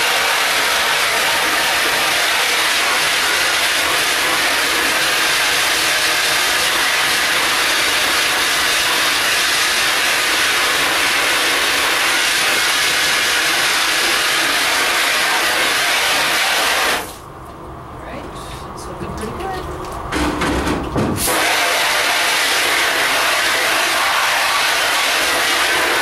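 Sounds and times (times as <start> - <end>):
hose spray hissing on mesh: 21.2 - 26.0.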